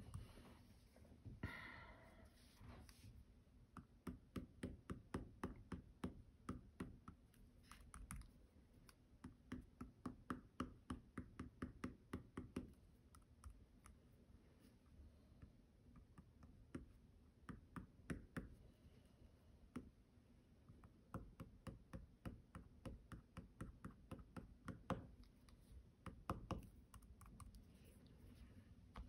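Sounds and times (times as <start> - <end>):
drawing tip tapping on paper: 9.2 - 12.8.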